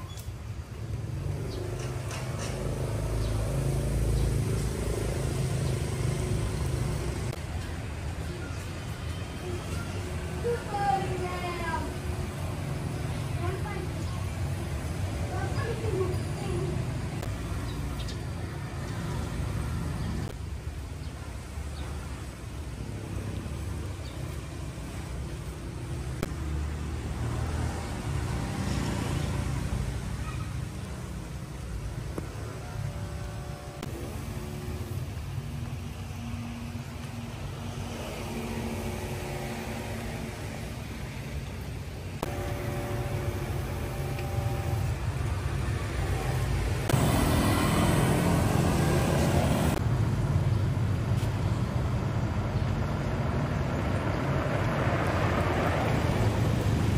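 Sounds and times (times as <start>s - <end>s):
low rumble of road traffic: 0.0s - 56.9s.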